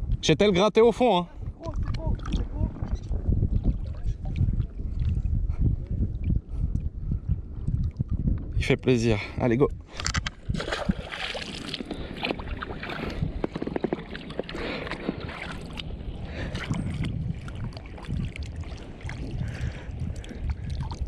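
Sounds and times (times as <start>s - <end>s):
wind rumble on microphone: 0.0s - 21.0s
splashes and knocks: 10.1s - 15.9s
small waves lapping: 10.4s - 21.0s.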